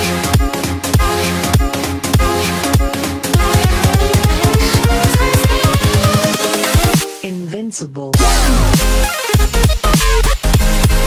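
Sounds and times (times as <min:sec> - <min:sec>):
electronic dance music: 0:03.2 - 0:07.2, 0:08.2 - 0:09.5.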